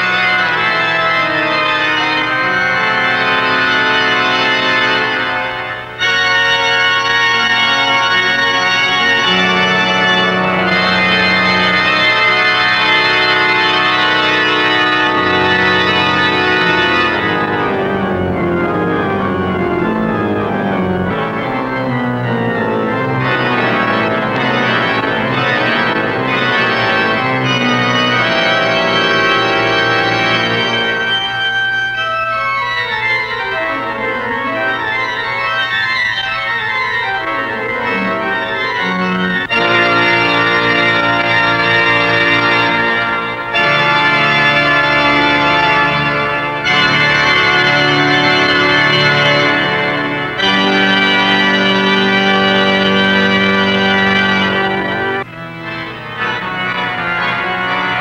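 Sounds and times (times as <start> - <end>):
organ music: 0.0 - 58.0.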